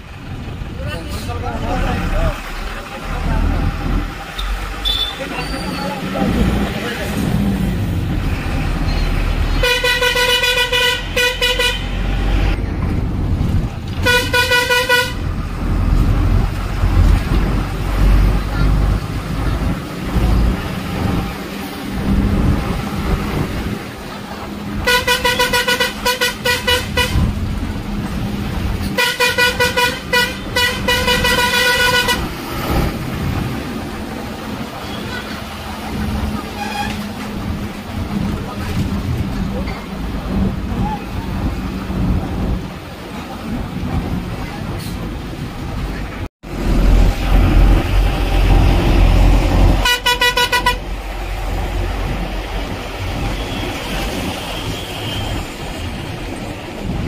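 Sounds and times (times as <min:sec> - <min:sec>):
low rumble of moving vehicle: 0:00.0 - 0:57.0
street traffic: 0:00.0 - 0:57.0
vehicle horn honking: 0:04.4 - 0:05.4, 0:09.6 - 0:12.1, 0:14.0 - 0:15.2, 0:24.8 - 0:27.3, 0:29.0 - 0:32.3, 0:49.8 - 0:50.9.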